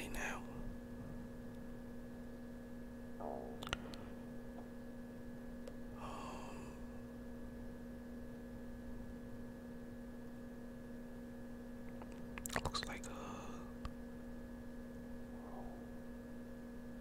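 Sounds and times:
electrical hum: 0:00.0 - 0:17.0
soft breath hiss: 0:12.5 - 0:16.3.

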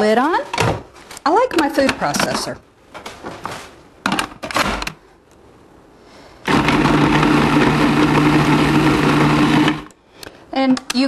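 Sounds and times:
food processor motor running: 0:06.5 - 0:09.9.

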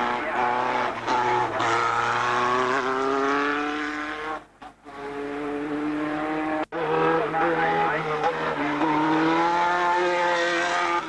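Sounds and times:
racing car engine accelerating: 0:00.0 - 0:11.0.

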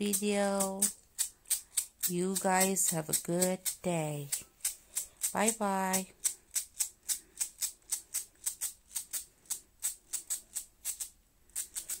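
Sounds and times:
shaker percussion rhythm: 0:00.0 - 0:09.2.

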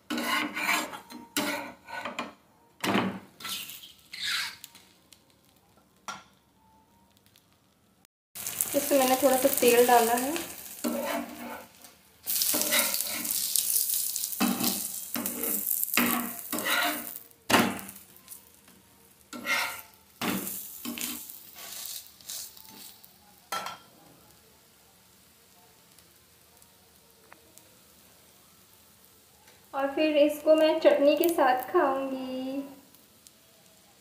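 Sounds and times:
oil sizzling: 0:00.0 - 0:01.9, 0:03.0 - 0:06.1, 0:08.4 - 0:34.0
metal spatula scraping: 0:00.0 - 0:02.4, 0:03.4 - 0:04.8, 0:08.5 - 0:18.3, 0:19.3 - 0:23.0.

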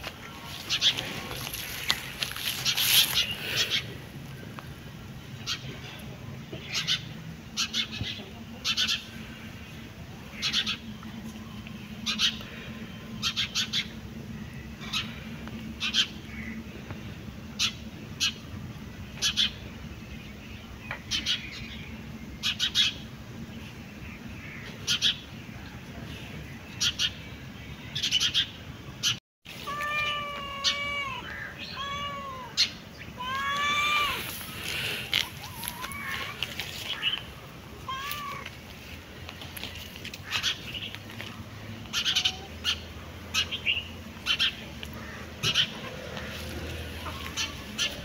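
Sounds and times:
cat meowing: 0:29.5 - 0:34.4, 0:37.8 - 0:38.5.

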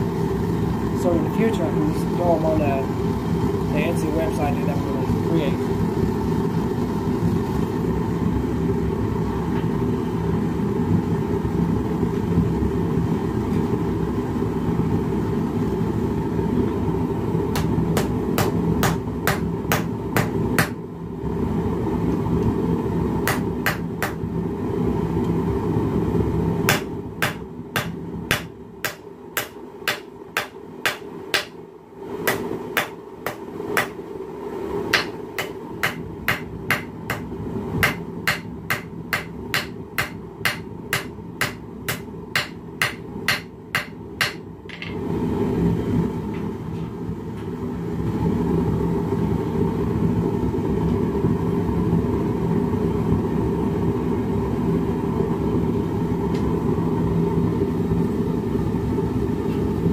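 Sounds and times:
gas forge burner roar: 0:00.0 - 0:59.9
hammer striking steel on anvil: 0:26.7 - 0:31.6, 0:32.3 - 0:34.0, 0:34.9 - 0:44.4.

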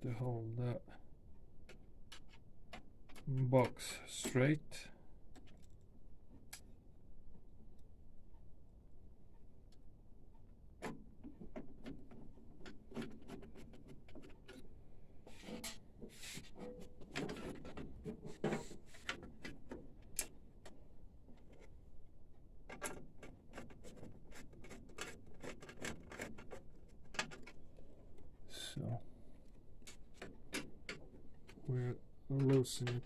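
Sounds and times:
clicks and knocks of parts: 0:01.6 - 0:04.4, 0:05.3 - 0:06.7, 0:10.8 - 0:21.8, 0:22.6 - 0:28.4, 0:29.3 - 0:33.0
rubbing of metal and plastic: 0:10.8 - 0:21.8, 0:22.7 - 0:28.4, 0:29.3 - 0:33.0.

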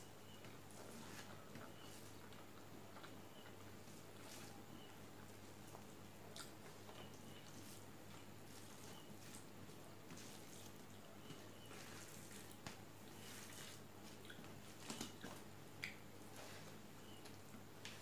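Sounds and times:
soft chewing: 0:00.0 - 0:18.0
fingers squishing rice on plate: 0:05.6 - 0:18.0.

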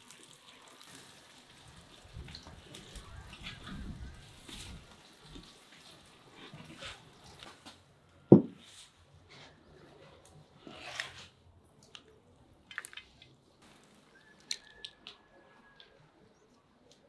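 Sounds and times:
wet squishing food: 0:00.0 - 0:07.9, 0:09.6 - 0:16.1
knock on ceramic bowl: 0:08.3 - 0:08.6
faint thin whistle: 0:14.1 - 0:15.8.

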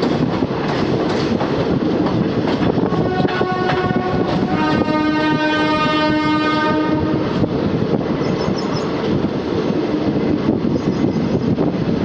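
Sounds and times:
train rumble and clatter: 0:00.0 - 0:12.0
train horn: 0:02.8 - 0:07.4.

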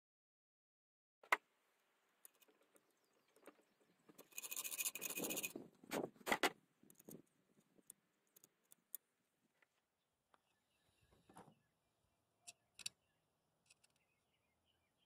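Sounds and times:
metal parts clicking and knocking: 0:02.2 - 0:05.6.

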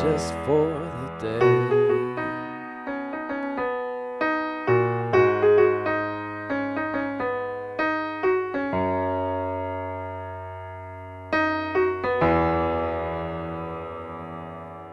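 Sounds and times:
piano chords: 0:00.0 - 0:14.9.

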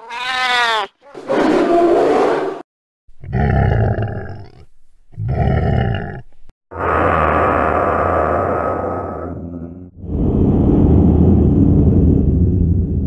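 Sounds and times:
cat-like yowl: 0:00.0 - 0:01.0, 0:06.7 - 0:09.8
low growling roars: 0:05.2 - 0:13.0.

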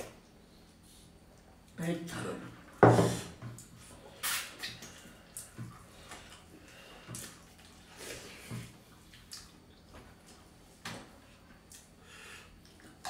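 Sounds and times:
mouth smacks: 0:04.2 - 0:05.0
chewing: 0:08.9 - 0:10.6.

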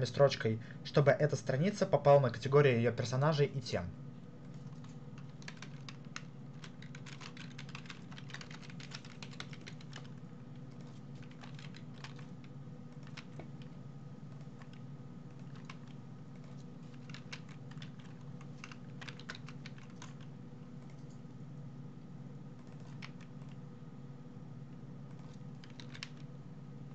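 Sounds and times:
low steady hum: 0:00.0 - 0:26.9
typing on a keyboard: 0:04.5 - 0:21.2, 0:22.6 - 0:23.6, 0:25.1 - 0:26.3.

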